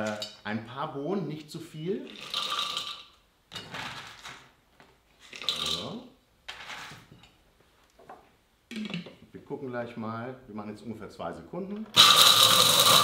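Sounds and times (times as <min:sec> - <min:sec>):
beans rattling into a steel jug: 0:05.3 - 0:07.0.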